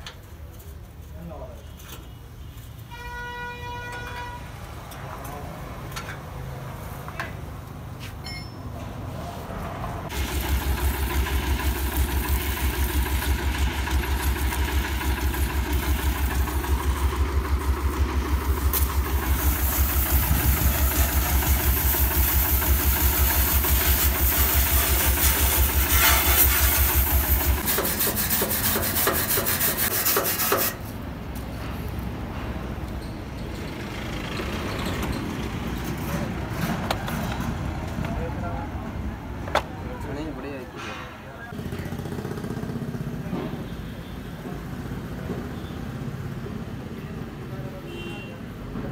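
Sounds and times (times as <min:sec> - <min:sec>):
diesel engine running: 0:09.8 - 0:28.1.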